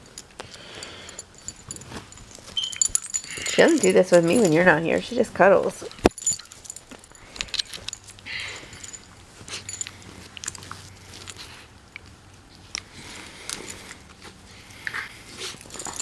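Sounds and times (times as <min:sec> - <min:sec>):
short rustling: 0:00.6 - 0:11.8.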